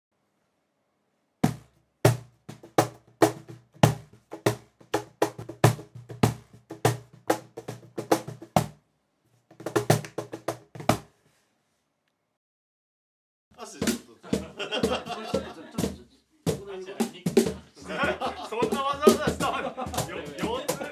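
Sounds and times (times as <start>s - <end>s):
cajon drum played by hand: 1.4s - 8.8s, 9.5s - 11.1s, 13.8s - 20.9s.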